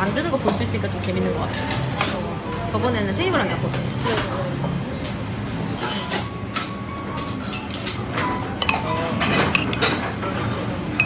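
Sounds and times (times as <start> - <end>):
kitchen hum: 4.8 - 11.0
dishes and cutlery clinking: 5.8 - 11.0
forks striking ceramic bowl: 8.6 - 9.9.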